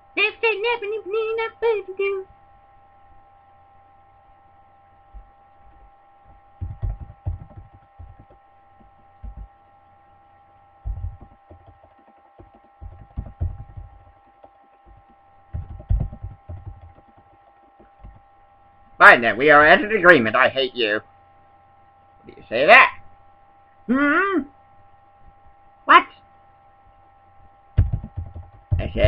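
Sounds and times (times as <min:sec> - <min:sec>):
steady electrical hum: 0:00.0 - 0:29.0
muffled keyboard typing: 0:06.6 - 0:09.5, 0:10.8 - 0:18.2, 0:27.8 - 0:29.0.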